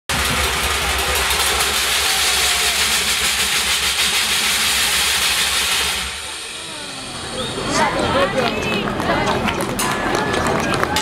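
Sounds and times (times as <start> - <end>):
metallic clatter: 0.1 - 6.7
low drumming rumble: 0.1 - 11.0.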